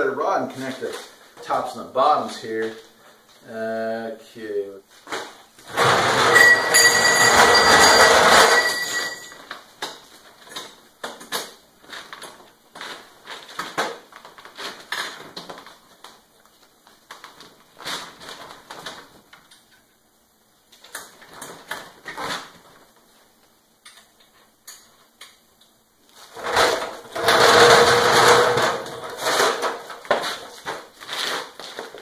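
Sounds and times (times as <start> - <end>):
stool casters rolling on concrete: 5.6 - 9.6, 26.3 - 32.0
metal clinks and rattles: 5.7 - 9.4.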